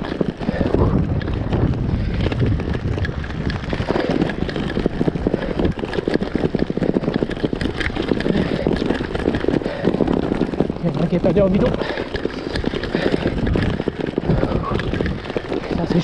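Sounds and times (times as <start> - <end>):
bike rattling over cobblestones: 0.0 - 16.0.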